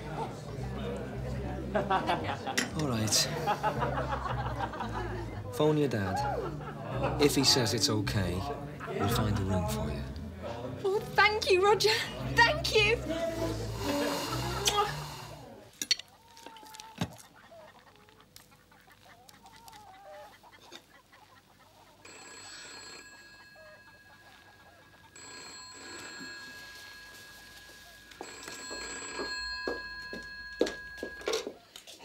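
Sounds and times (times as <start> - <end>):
hens clucking: 16.0 - 27.1
telephone bell ringing: 22.0 - 31.7.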